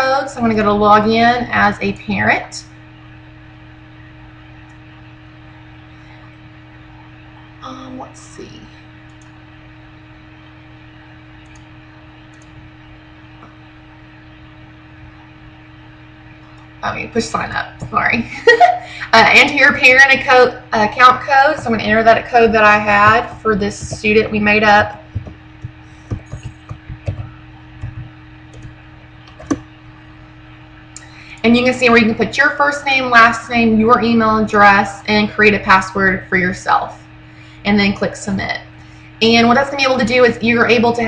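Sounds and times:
electrical hum and hiss: 0:00.0 - 0:41.0
computer mouse clicks: 0:11.4 - 0:11.7, 0:12.3 - 0:12.6, 0:25.2 - 0:29.6.

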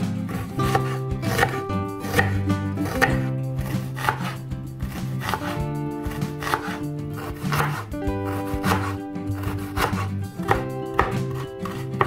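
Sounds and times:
plucked guitar music: 0:00.0 - 0:12.0
knife chopping on wooden board: 0:00.3 - 0:12.0.

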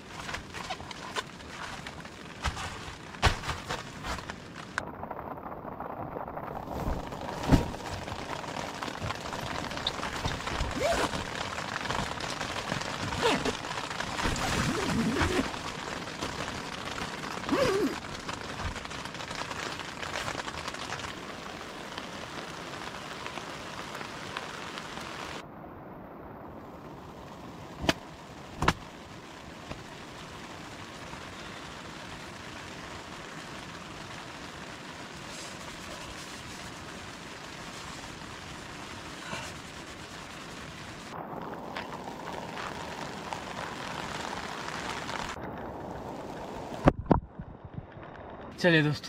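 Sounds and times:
knocks and rustles: 0:00.0 - 0:04.8
heavy rain on a tent: 0:00.0 - 0:49.0.

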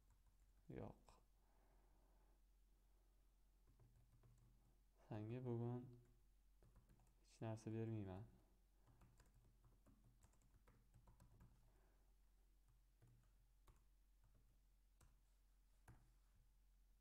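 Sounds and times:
faint computer keyboard typing: 0:00.0 - 0:00.5, 0:03.6 - 0:04.8, 0:05.8 - 0:07.3, 0:08.2 - 0:11.7, 0:12.6 - 0:16.5.

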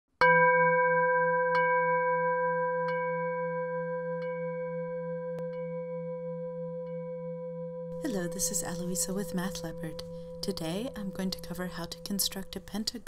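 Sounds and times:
low wavering hum: 0:07.9 - 0:13.0
struck bell ringing: 0:08.0 - 0:13.0.

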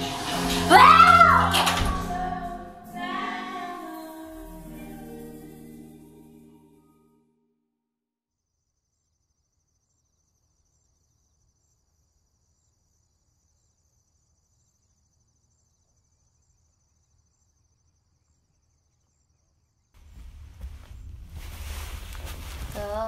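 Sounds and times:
insects chirping: 0:08.8 - 0:22.8.

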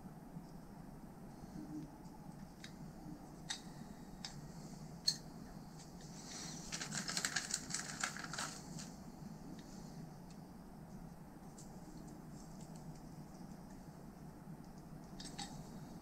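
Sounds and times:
plastic bag crinkling: 0:06.4 - 0:08.9.

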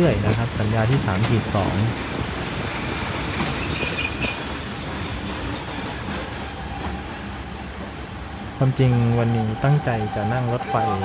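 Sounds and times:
moving train rumble: 0:00.0 - 0:11.0
train wheels squealing: 0:02.7 - 0:07.2, 0:08.8 - 0:11.0.

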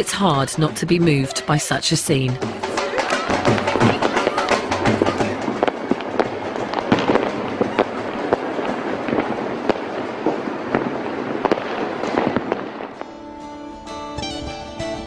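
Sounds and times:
soft music: 0:00.0 - 0:09.2, 0:12.9 - 0:15.0
fireworks banging and crackling: 0:00.0 - 0:13.4.

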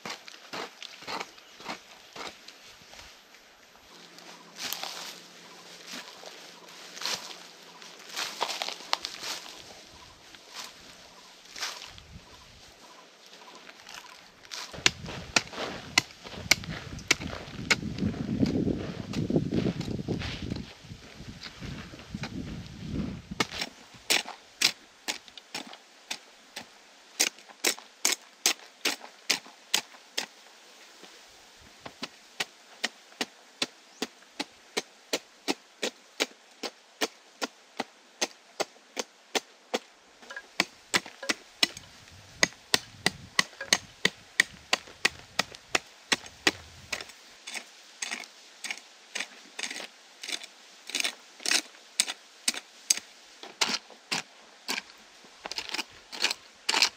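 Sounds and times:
hoe chopping into hard soil: 0:14.8 - 0:17.9, 0:40.5 - 0:47.1.

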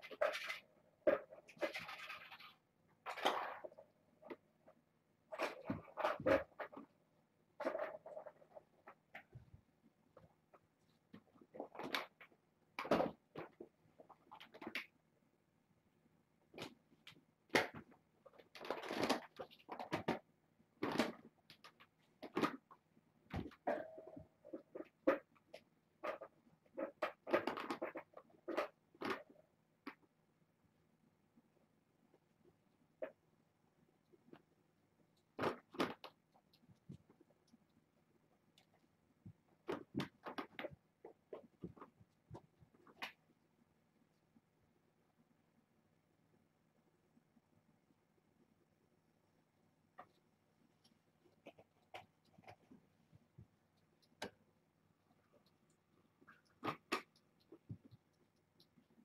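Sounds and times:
kittens playing with toys: 0:00.0 - 0:07.0, 0:07.6 - 0:09.7, 0:16.5 - 0:22.7, 0:23.3 - 0:30.0, 0:50.0 - 0:54.5, 0:55.1 - 0:59.0.

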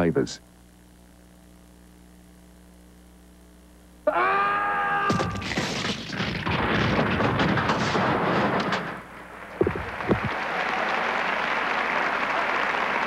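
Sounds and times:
person shouting: 0:04.1 - 0:05.4
dense noise: 0:05.0 - 0:10.7.

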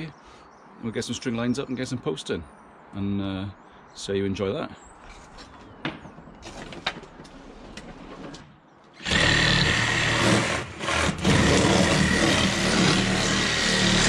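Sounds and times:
wooden fence panels knocking: 0:05.8 - 0:08.4
power saw cutting wood: 0:09.0 - 0:14.0.

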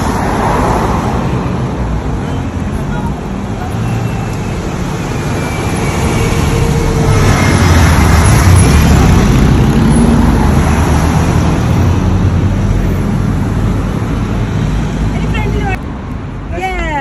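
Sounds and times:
bus passing: 0:00.0 - 0:17.0
road traffic passing: 0:00.0 - 0:17.0
motorcycle passing: 0:06.0 - 0:12.3.

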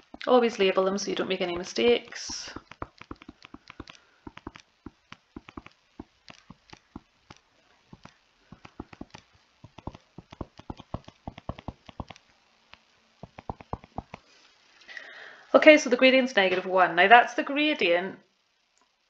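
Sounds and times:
stylus tapping on tablet screen: 0:01.2 - 0:14.2.

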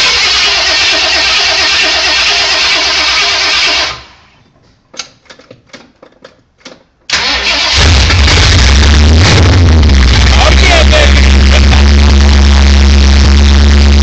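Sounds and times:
loud car engine running: 0:07.6 - 0:14.0.

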